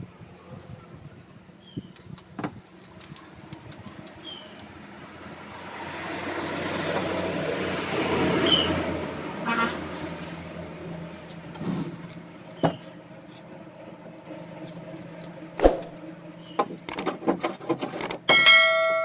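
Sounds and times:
bell-like ding: 18.3s - 19.0s.

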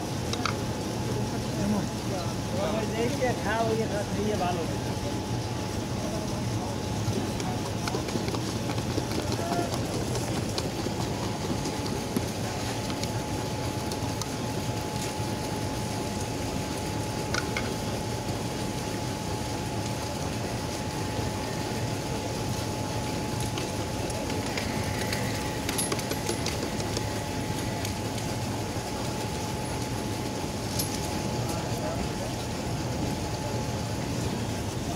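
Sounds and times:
faint street hum: 0.0s - 34.9s.

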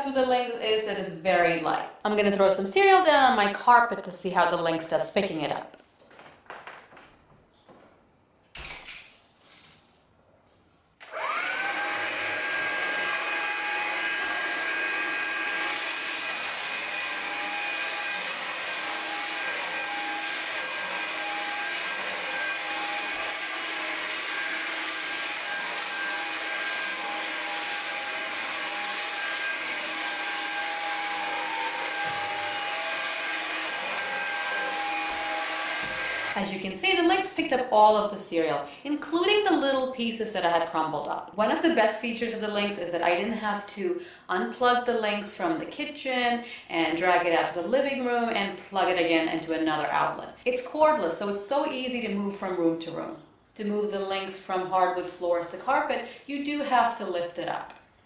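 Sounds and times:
cordless vacuum cleaner whine: 11.0s - 36.4s.

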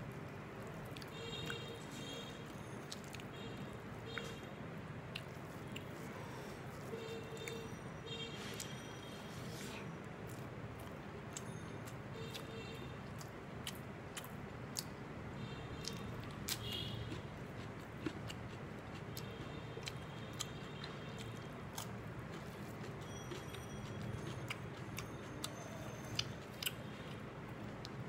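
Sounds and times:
low background hum: 0.0s - 28.0s
chewing: 2.8s - 3.4s, 5.1s - 7.7s, 10.3s - 15.0s, 15.8s - 28.0s.

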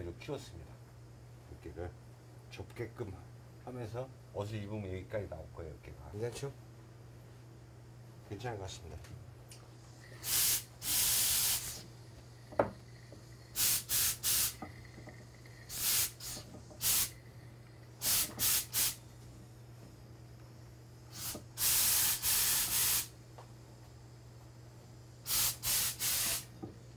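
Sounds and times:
steady low hum: 0.0s - 26.9s
garment steamer hissing bursts: 10.0s - 11.9s, 13.5s - 14.9s, 15.6s - 17.2s, 18.0s - 19.0s, 21.1s - 23.2s, 25.2s - 26.6s.

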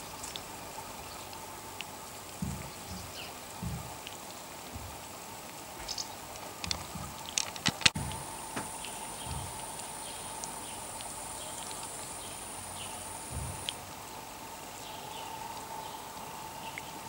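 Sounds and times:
faint background hiss: 0.0s - 17.0s
light clicks and taps: 1.3s - 11.8s
soft low thuds: 2.4s - 5.2s, 8.0s - 10.2s, 13.2s - 13.7s.

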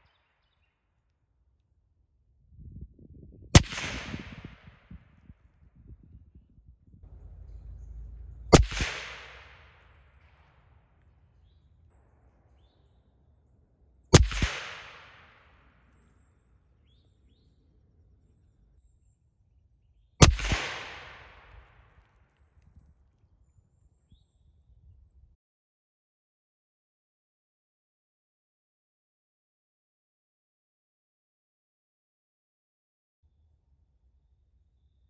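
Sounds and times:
rolling echo: 3.3s - 19.4s, 20.0s - 25.1s
suppressed rifle shots: 3.6s - 5.0s, 8.5s - 10.6s, 14.1s - 15.7s, 20.2s - 21.7s.

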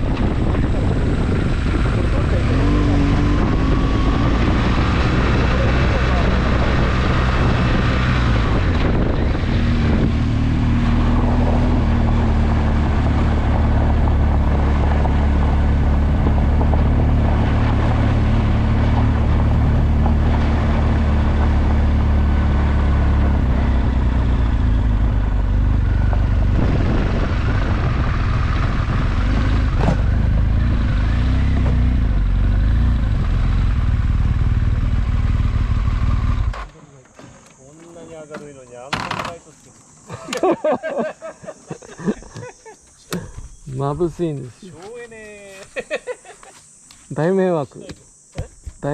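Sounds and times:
motorcycle engine running: 0.0s - 36.8s.

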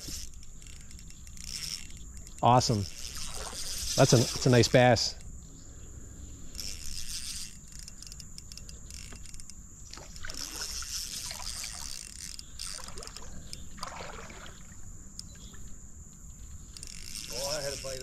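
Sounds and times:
high insect chirring: 0.0s - 18.0s
creek water splashing and trickling: 1.5s - 4.9s, 9.8s - 15.7s.

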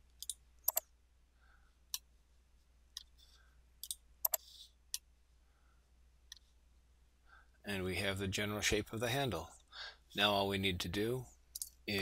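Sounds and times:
computer mouse clicking: 0.2s - 0.9s, 3.8s - 5.1s.

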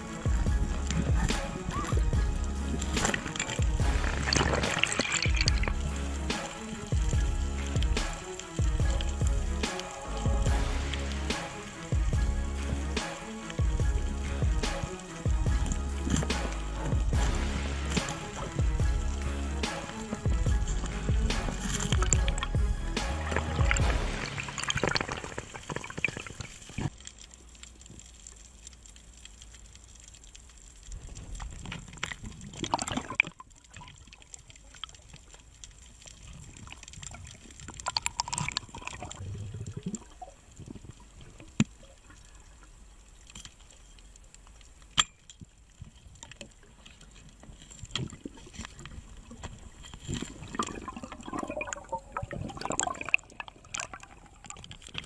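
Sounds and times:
underwater water swishes: 0.0s - 55.0s
underwater clicks and knocks: 0.2s - 5.9s, 20.1s - 27.2s.

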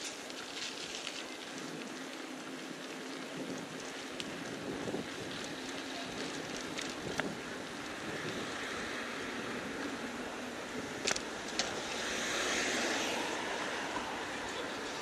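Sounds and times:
traffic rush: 0.0s - 15.0s
wind on microphone: 3.1s - 15.0s.

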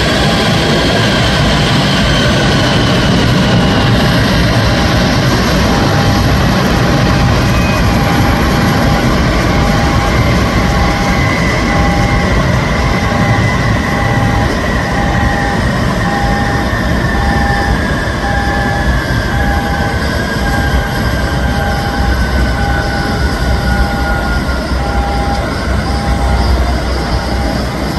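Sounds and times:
jet engines rumbling and whining: 0.0s - 27.9s
short beeps: 7.1s - 27.9s.

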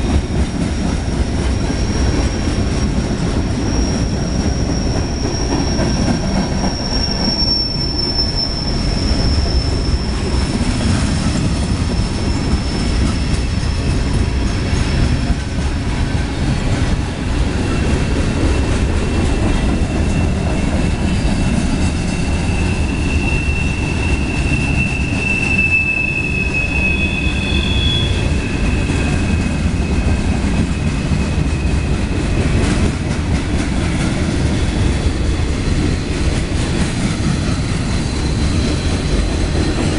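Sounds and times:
steel wheels rumbling on rail: 0.0s - 39.9s
wheel squeal: 1.6s - 14.0s, 19.1s - 32.6s, 37.6s - 39.9s.

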